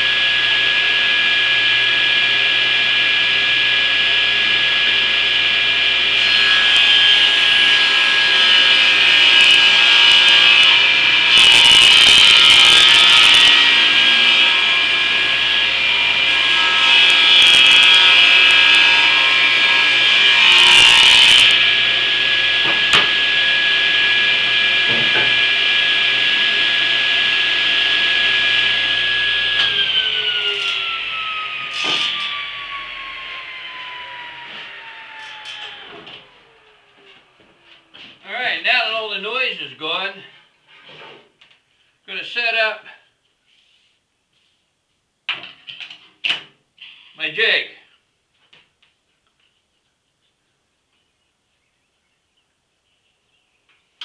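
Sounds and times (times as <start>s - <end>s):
table saw motor whine: 0.0s - 38.1s
saw blade cutting wood: 3.6s - 37.2s.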